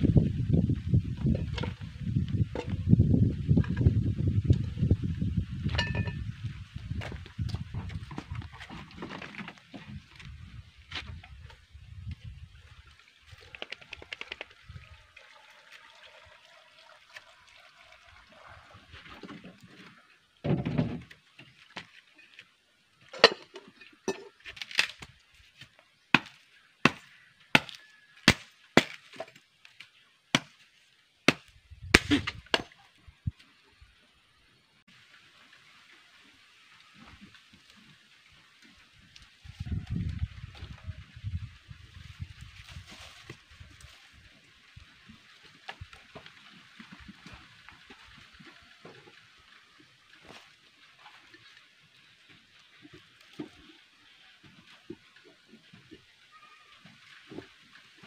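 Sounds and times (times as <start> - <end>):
machete chopping wooden branch: 26.1 - 29.4, 30.4 - 30.6, 31.3 - 32.8.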